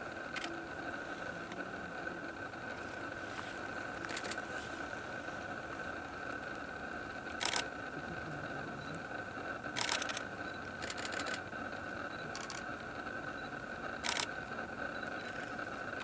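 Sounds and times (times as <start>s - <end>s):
faint steady hum: 0.0s - 16.0s
camera shutter clicks: 4.0s - 4.4s, 7.3s - 7.7s, 9.8s - 10.2s, 10.8s - 11.4s, 14.0s - 14.3s.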